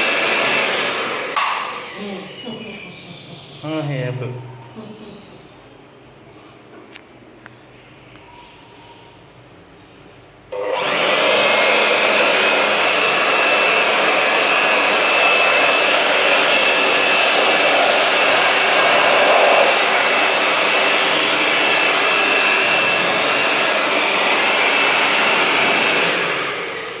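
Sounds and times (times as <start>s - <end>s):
electric blower whining: 0.0s - 2.4s, 10.5s - 27.0s.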